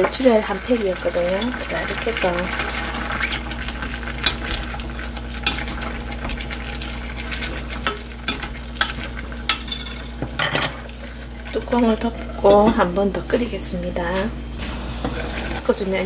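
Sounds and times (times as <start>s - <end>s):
braise bubbling: 0.0s - 13.2s
wooden spoon scraping a pot: 15.0s - 15.7s.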